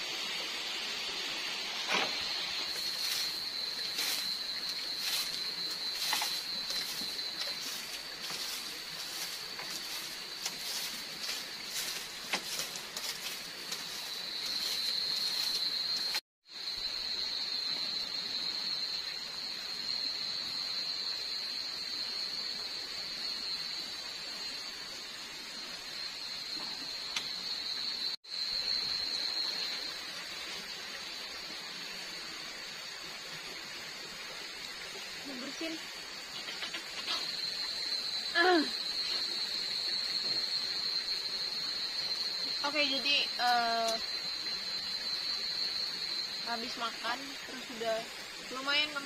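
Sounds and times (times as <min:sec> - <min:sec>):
night insects droning: 0:00.0 - 0:49.0
broom sweeping bamboo floor: 0:01.6 - 0:16.2.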